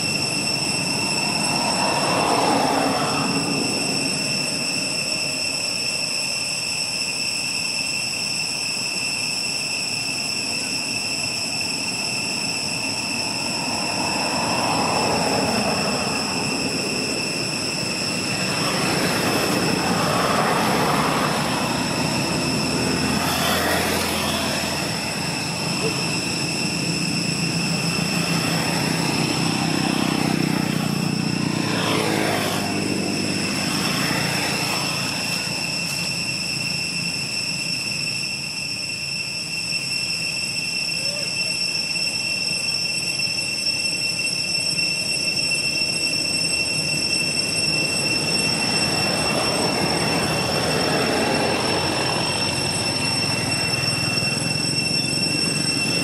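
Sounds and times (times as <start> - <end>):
vehicles passing: 0.0 - 6.0, 12.5 - 38.0, 46.5 - 56.0
high-pitched whine: 0.0 - 56.0.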